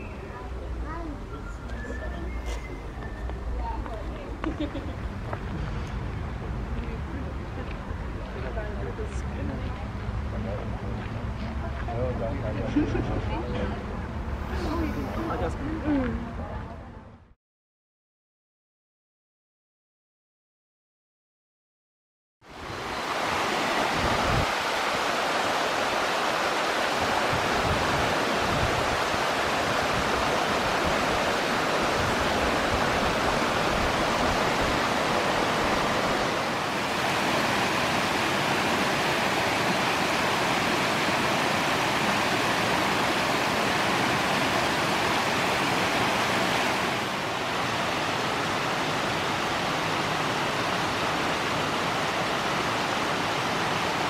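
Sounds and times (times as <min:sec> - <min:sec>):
stream running over rocks: 0:22.5 - 0:54.0.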